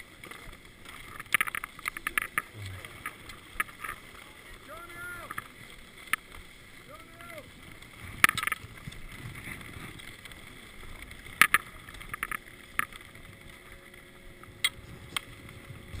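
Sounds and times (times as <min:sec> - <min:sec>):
skis and poles clacking on snow: 0:00.0 - 0:16.0
steady low rumble: 0:02.4 - 0:04.4.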